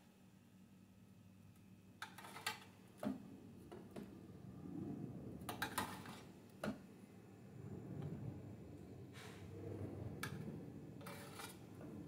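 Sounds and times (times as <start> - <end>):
metal spoon scraping metal pan: 11.0 - 11.6.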